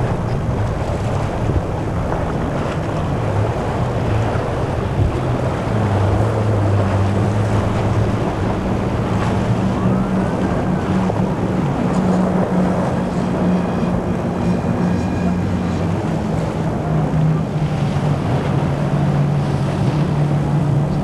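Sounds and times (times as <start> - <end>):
outboard motors droning: 0.0 - 21.0
wind: 0.0 - 21.0.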